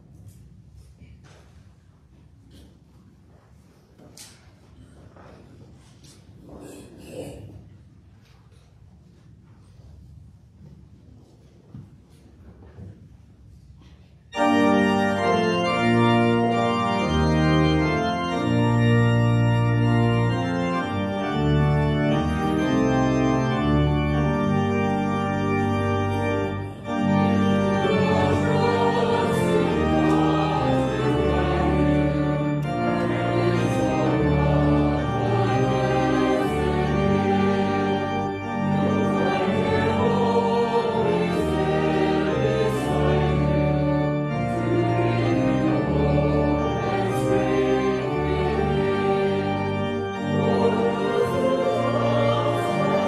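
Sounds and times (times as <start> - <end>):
church pipe organ playing a hymn: 14.2 - 53.0
voices singing: 27.8 - 38.1, 38.7 - 53.0.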